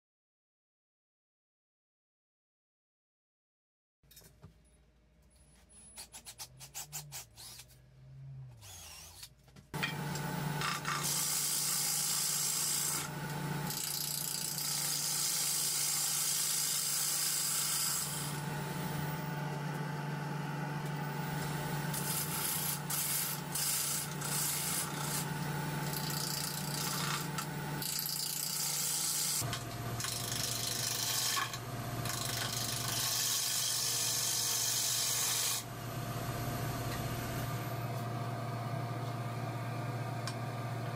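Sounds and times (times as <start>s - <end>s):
cordless drill into wood: 8.6s - 9.3s
wood lathe humming: 9.8s - 37.4s
gouge cutting spinning wood: 10.0s - 19.7s, 20.9s - 35.6s.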